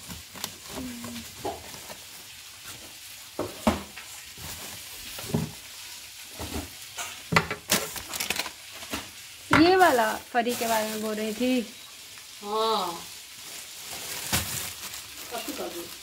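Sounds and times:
plastic wrapping crinkling: 0.0s - 16.0s
steady hiss: 0.0s - 16.0s
items knocking on shelf: 7.3s - 7.8s.

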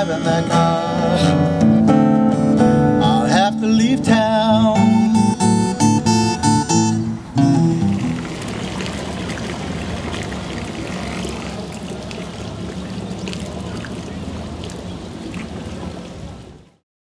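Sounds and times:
river water splashing: 4.1s - 16.8s.

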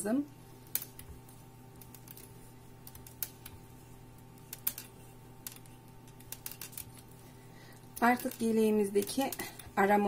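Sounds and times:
steady low hum: 0.0s - 10.0s
knitting needles clicking: 0.7s - 1.1s, 1.8s - 3.6s, 4.2s - 7.1s, 7.8s - 9.8s.

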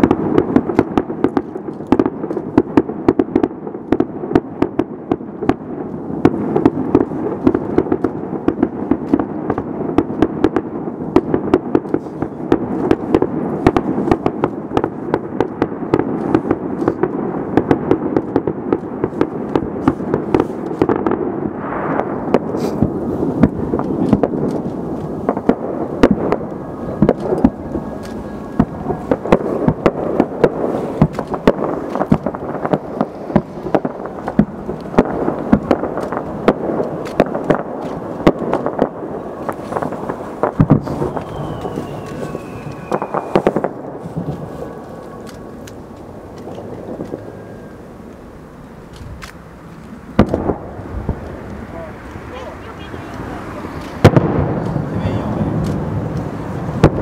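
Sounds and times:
fireworks bangs and crackles: 0.0s - 57.0s
steady rumble: 21.4s - 57.0s.

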